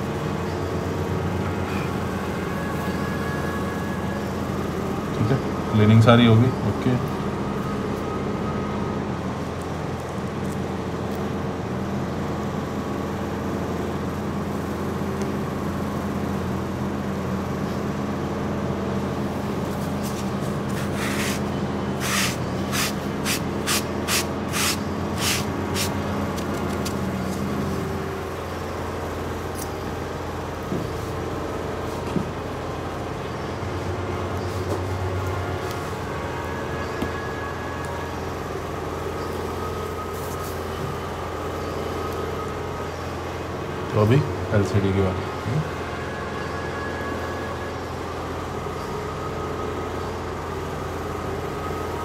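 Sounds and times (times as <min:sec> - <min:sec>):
electrical hum of equipment: 0:00.0 - 0:52.0
short hisses: 0:20.7 - 0:21.4, 0:22.0 - 0:26.0.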